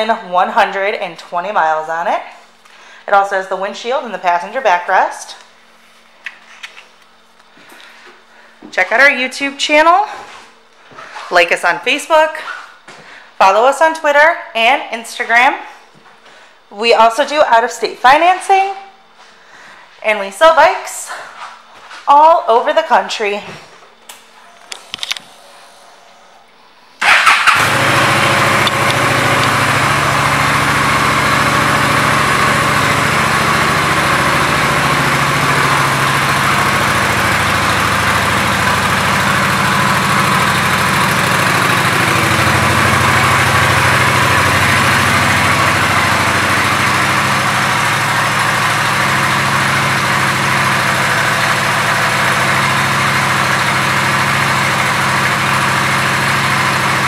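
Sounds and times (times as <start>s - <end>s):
motorcycle engine idling: 27.0s - 57.0s.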